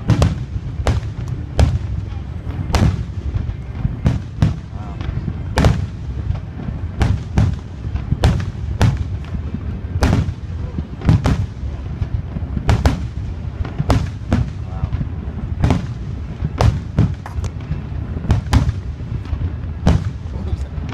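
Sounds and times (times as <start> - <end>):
firework bangs: 0.0 - 20.9
low rumble: 0.0 - 20.9.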